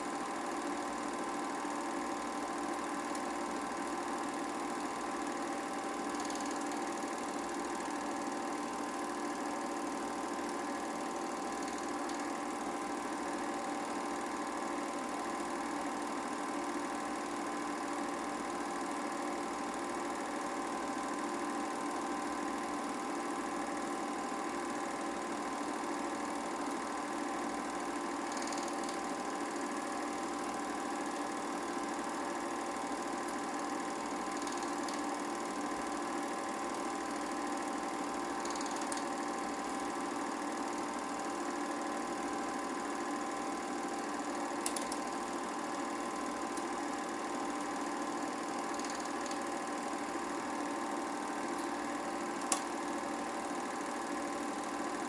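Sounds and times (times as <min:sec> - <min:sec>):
film projector whirring: 0:00.0 - 0:55.0.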